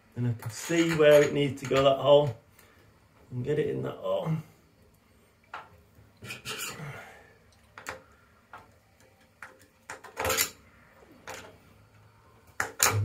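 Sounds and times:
metal screw clicking and scraping: 0.5 - 1.9, 9.4 - 10.6.

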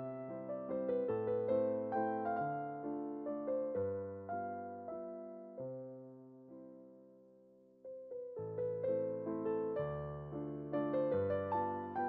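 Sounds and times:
gentle piano music: 0.0 - 12.0.

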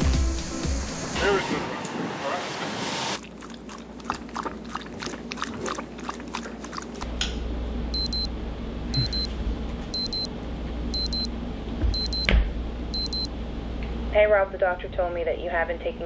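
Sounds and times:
dog lapping water from metal bowl: 3.2 - 7.1
low steady hum: 3.2 - 16.0
electronic double beep: 8.0 - 8.3, 9.0 - 9.3, 10.0 - 10.3, 11.0 - 11.3, 12.0 - 12.3, 13.0 - 13.3.

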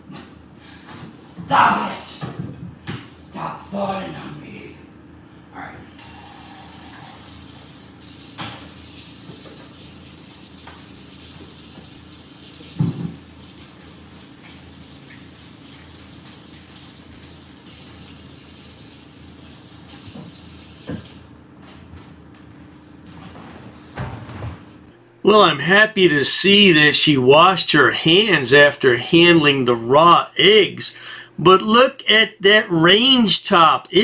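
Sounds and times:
thump: 12.8 - 13.2.

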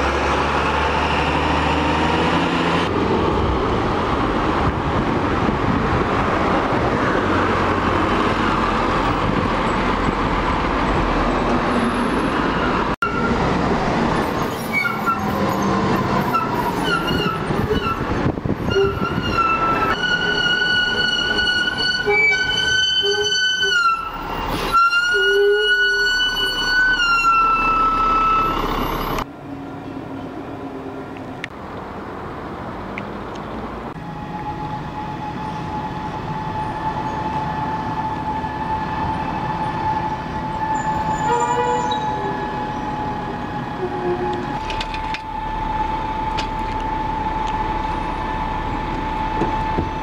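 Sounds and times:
bus engines passing: 0.0 - 50.0
road traffic: 0.0 - 50.0
high-pitched bus whine: 10.9 - 31.1, 33.9 - 50.0.

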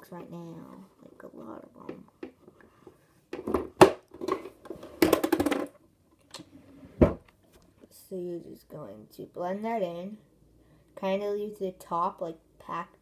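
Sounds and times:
small objects clicking and knocking: 3.4 - 6.4.

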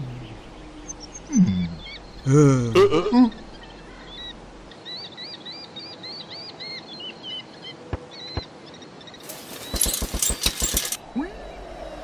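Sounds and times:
small birds chirping: 0.0 - 2.3, 3.2 - 12.0
sharp clicks: 9.6 - 11.0.

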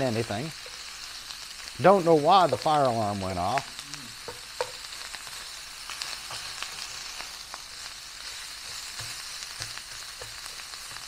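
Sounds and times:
meat sizzling in a pan: 0.0 - 11.0
utensil knocking in pan: 4.2 - 4.8, 8.6 - 11.0.

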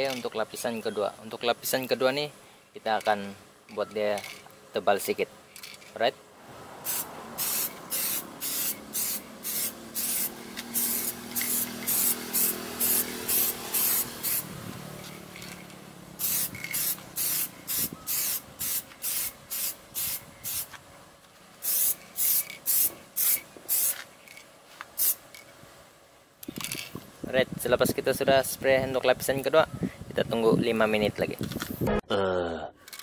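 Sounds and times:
spray can hissing: 6.8 - 20.8, 21.6 - 24.1, 25.0 - 25.2.

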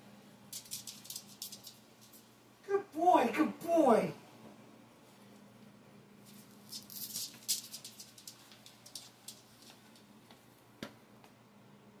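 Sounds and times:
faint steady hum: 0.0 - 12.0
dog claws clicking on floor: 0.5 - 2.3, 6.3 - 10.4.

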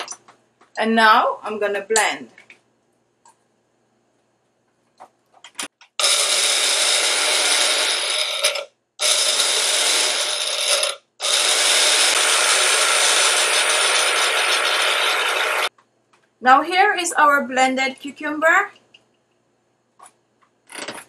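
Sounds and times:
blender motor chopping: 6.0 - 15.7.

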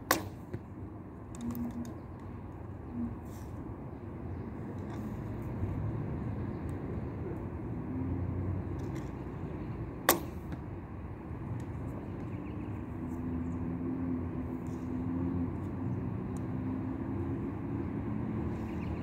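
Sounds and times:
bow string snap: 0.0 - 0.5, 10.0 - 10.6.

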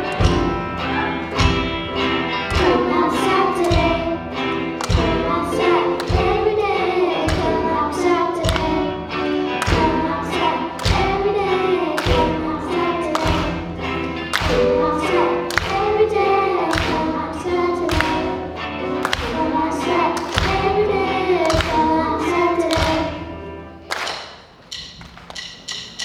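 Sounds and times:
drum hits: 0.0 - 7.8
girls singing together: 0.0 - 23.7
rock band playing live: 0.0 - 23.8.

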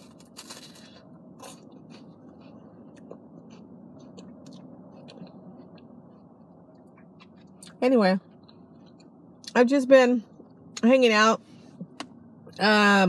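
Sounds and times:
ice cream cone crunching: 0.0 - 7.8
low steady hum: 0.0 - 13.0
chewing clicks: 8.4 - 9.6.

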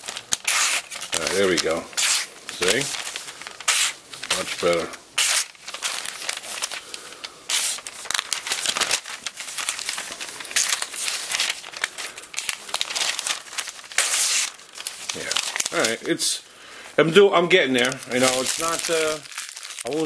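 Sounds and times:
paper crinkling: 0.0 - 16.4, 17.6 - 20.0
knife slicing paper: 0.3 - 6.8, 7.5 - 11.7, 12.4 - 15.9.

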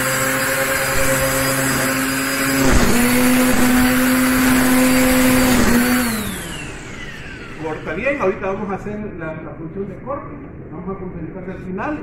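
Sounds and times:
string trimmer motor whine: 0.0 - 8.3.

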